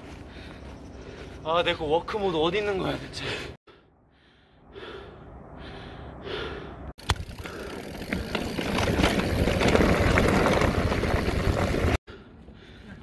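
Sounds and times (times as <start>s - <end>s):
bike rattles and clicks: 7.0s - 12.0s
bike tyres on dirt: 7.0s - 12.0s.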